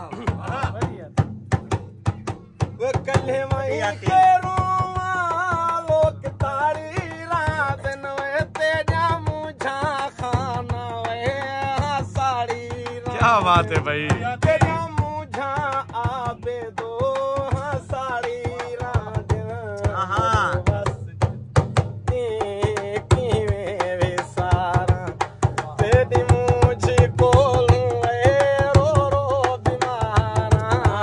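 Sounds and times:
hand percussion beats: 0.0 - 31.0
man singing ornamented phrases: 11.2 - 20.9.

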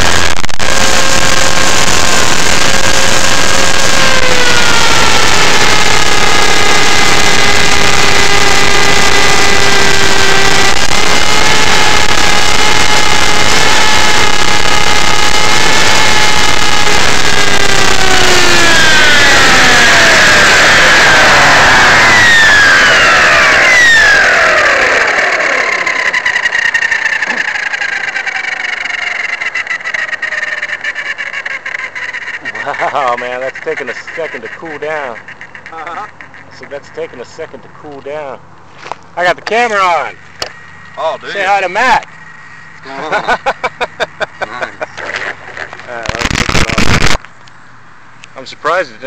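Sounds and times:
rc helicopter motor whine: 0.0 - 36.8, 45.1 - 47.2
rotor blades rushing: 0.0 - 37.7, 39.6 - 47.2.

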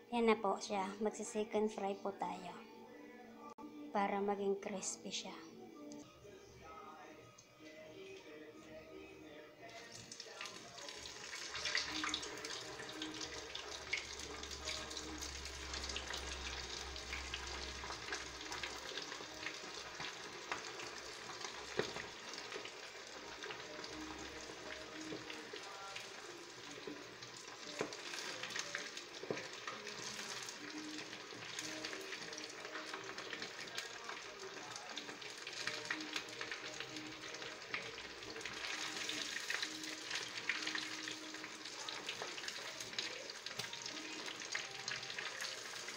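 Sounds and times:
chicken deep-frying in oil: 9.7 - 45.9.

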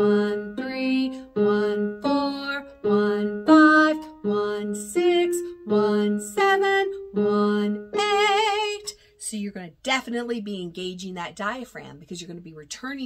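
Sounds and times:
woman singing: 0.0 - 9.0.

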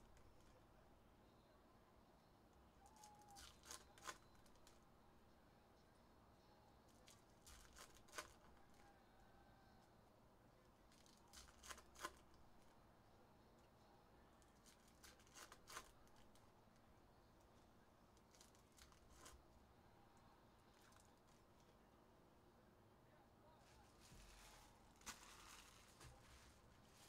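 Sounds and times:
foil packs ripping and crinkling: 3.0 - 4.8, 7.0 - 8.5, 10.9 - 12.2, 14.6 - 16.3, 24.2 - 26.6.

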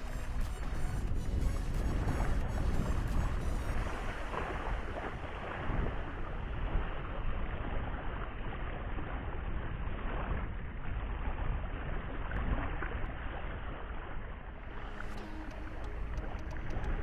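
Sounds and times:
small waves lapping on shore: 0.0 - 17.0
wind rumbling on microphone: 0.0 - 17.0.

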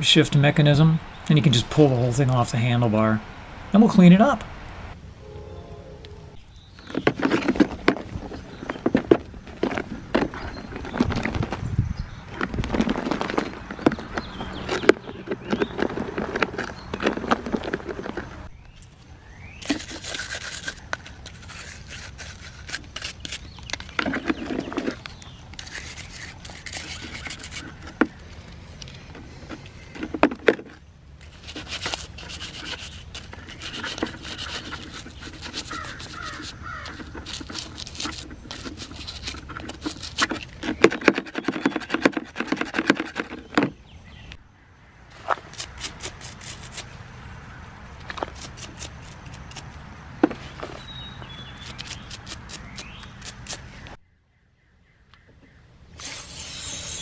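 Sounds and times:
brush scrubbing plastic in water: 31.2 - 43.4.

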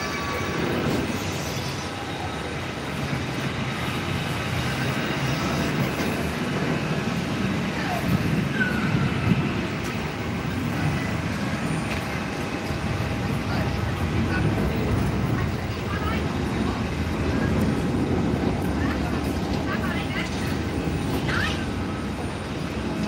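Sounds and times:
faint voices: 0.0 - 23.0.

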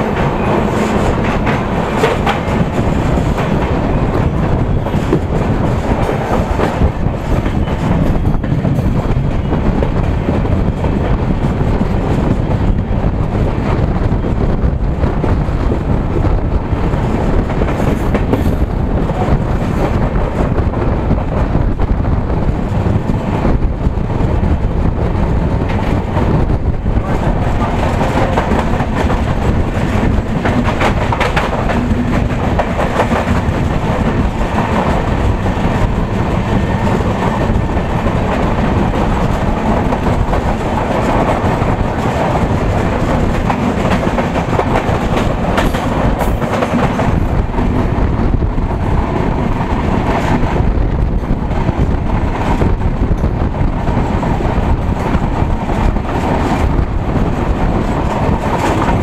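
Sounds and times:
passing train rattling clatter: 0.0 - 59.0
train wheels clickety-clack: 0.0 - 59.0.

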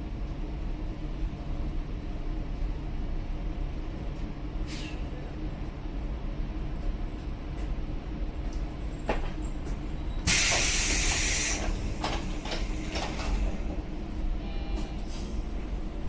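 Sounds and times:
low rumble of standing train: 0.0 - 16.0
pneumatic door air hiss: 4.6 - 5.0, 10.2 - 13.4.

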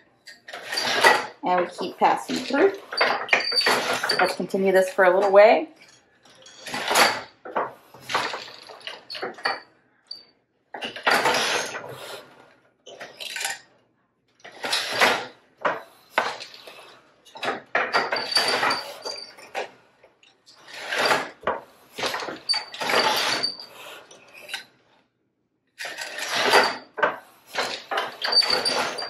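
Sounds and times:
high squeak from loom: 0.3 - 4.5, 6.4 - 7.3, 10.8 - 11.9, 17.8 - 19.6, 20.6 - 21.4, 22.0 - 24.7, 25.8 - 26.9, 27.5 - 29.0
heddles clattering on loom: 0.5 - 5.4, 14.5 - 19.7, 25.8 - 29.0
shuttle passing through loom: 25.8 - 29.0
loom beater knocking: 25.9 - 29.0.

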